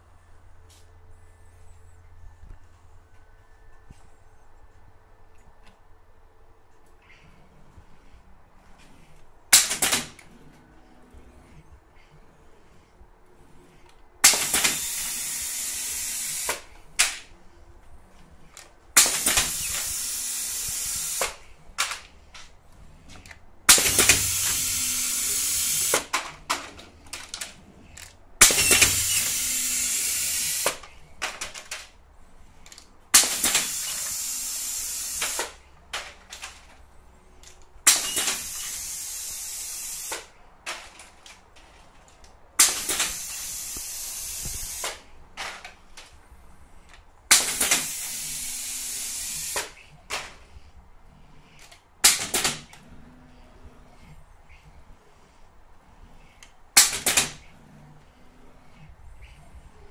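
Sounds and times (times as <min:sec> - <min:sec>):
compressed air hiss: 0:14.2 - 0:16.8, 0:19.0 - 0:21.5, 0:23.7 - 0:26.1, 0:28.4 - 0:31.0, 0:33.2 - 0:35.6, 0:37.9 - 0:40.4, 0:42.6 - 0:45.2, 0:47.3 - 0:50.0.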